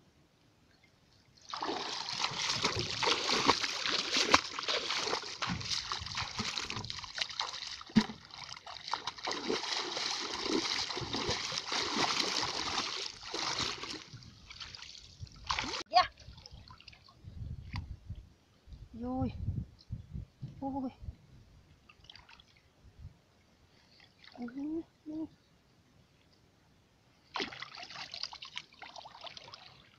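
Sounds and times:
splashing in shallow muddy water: 1.4 - 17.2, 27.3 - 29.9.

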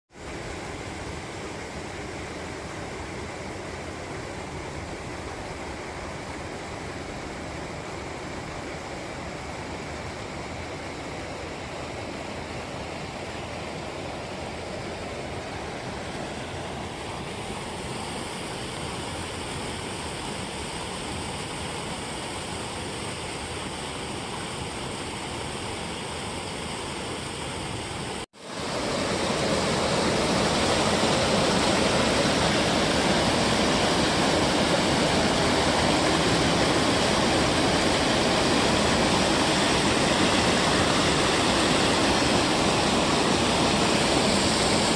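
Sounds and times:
water rushing over weir: 0.1 - 44.9.

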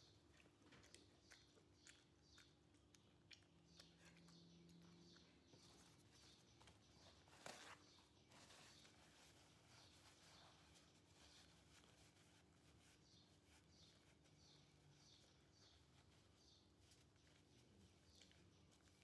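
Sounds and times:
cloth rustle: 6.5 - 19.0.

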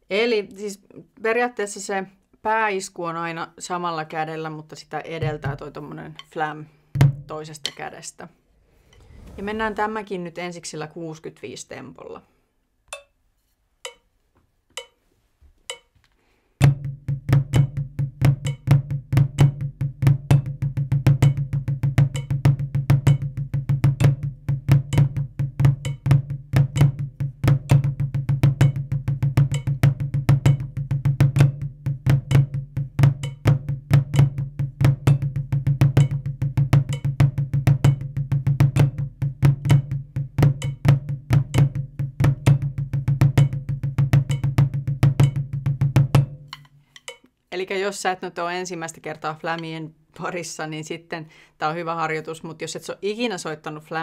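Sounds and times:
drumsticks on a practice pad: 12.9 - 13.2, 13.8 - 16.9, 45.2 - 45.5, 46.1 - 47.4.

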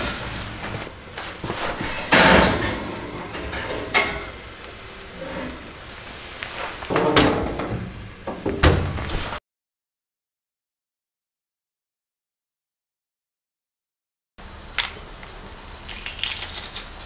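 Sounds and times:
metal rack clattering and scraping: 0.8 - 9.4
oven door closing: 1.2 - 9.4
metal clank: 1.6 - 9.3.

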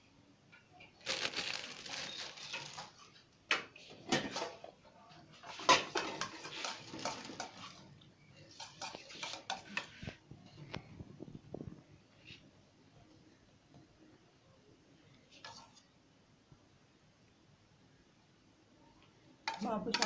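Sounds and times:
rustling: 1.0 - 3.2.

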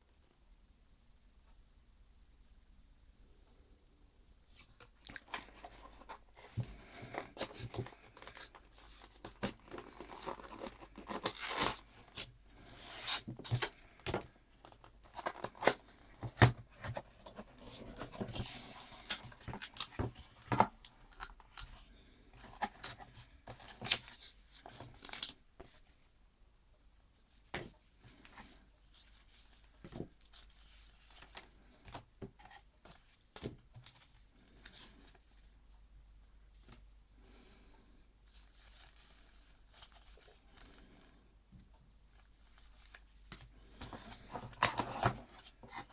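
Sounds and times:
cardboard and paper rustling: 4.6 - 26.0, 38.3 - 41.0, 42.0 - 45.9.

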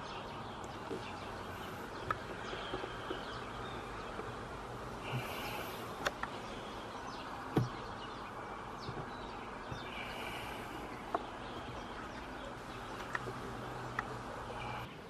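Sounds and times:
birds chirping: 0.0 - 15.0
steady background hum: 0.0 - 15.0
faint clicks: 0.6 - 4.4, 5.0 - 6.5, 8.8 - 14.9.

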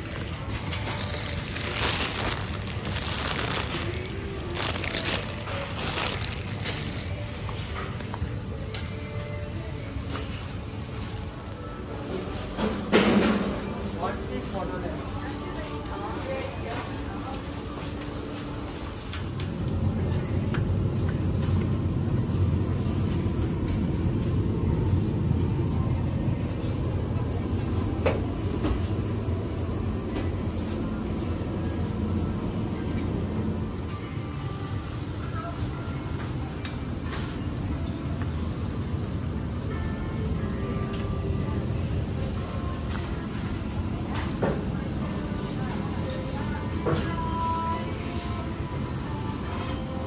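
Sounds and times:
plastic bags crinkling: 0.0 - 7.4.

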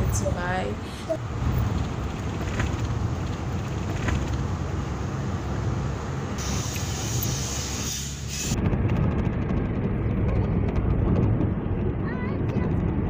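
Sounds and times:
car cabin rumble: 0.0 - 6.4.

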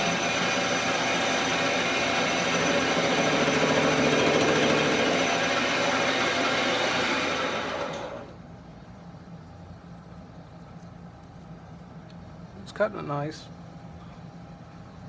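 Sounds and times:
metal lathe cutting steel: 0.0 - 8.3.

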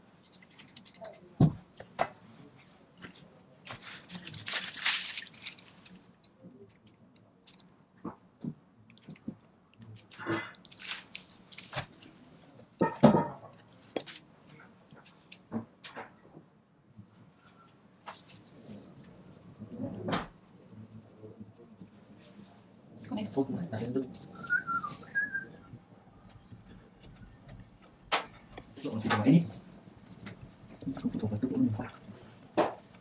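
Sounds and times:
plastic piping bag crinkling: 4.0 - 6.0, 10.0 - 12.1.

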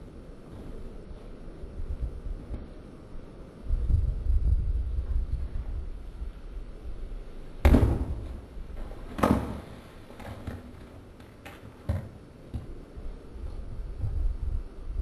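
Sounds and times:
cinder blocks crashing down: 7.6 - 8.4.

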